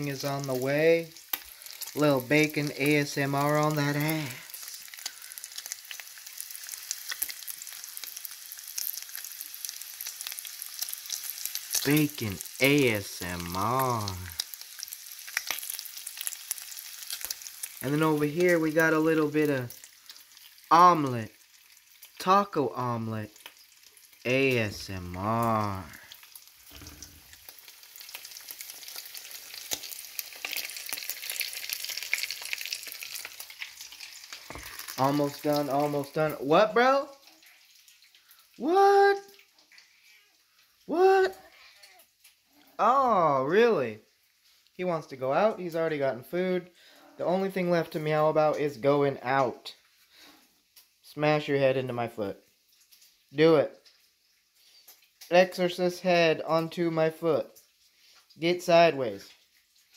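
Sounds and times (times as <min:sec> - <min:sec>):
bacon sizzling in a pan: 0:00.0 - 0:42.8, 0:44.0 - 0:51.5, 0:52.3 - 0:59.9.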